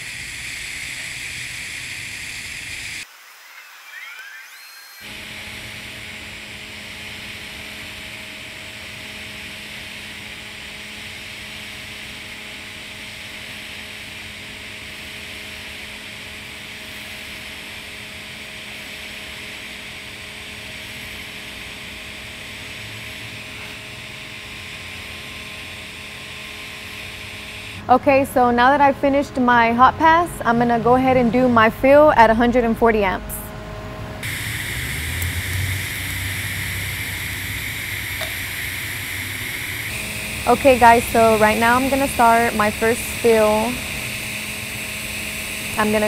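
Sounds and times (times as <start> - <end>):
welding arc hissing: 0.0 - 27.9, 34.2 - 46.0
faint steady hum: 26.4 - 46.0.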